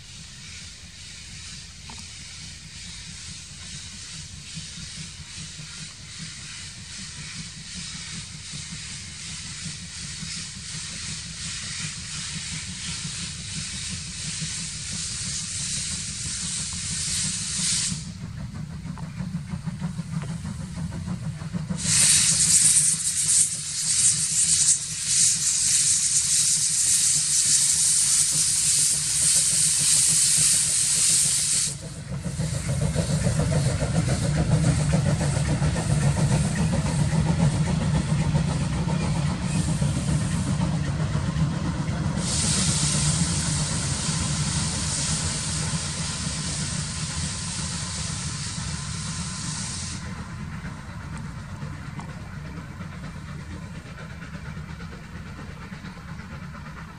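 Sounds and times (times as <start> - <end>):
steam hissing from locomotive: 0.0 - 56.9.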